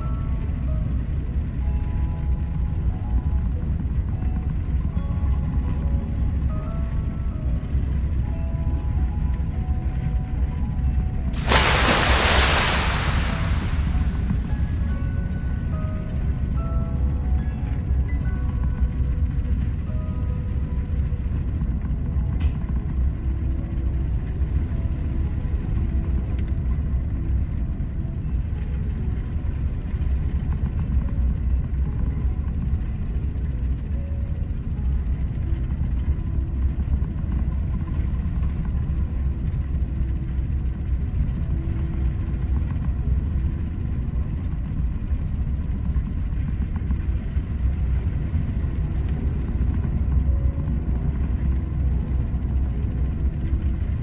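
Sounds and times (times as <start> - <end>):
storm wind and heavy seas: 11.4 - 15.1.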